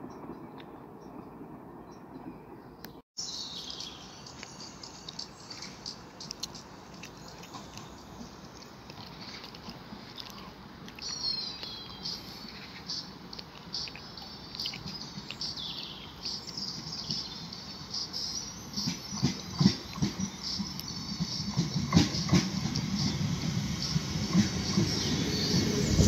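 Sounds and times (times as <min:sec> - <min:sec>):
small birds chirping: 0:01.8 - 0:26.0
electric train rumble: 0:14.8 - 0:26.0
train knocks: 0:18.6 - 0:26.0.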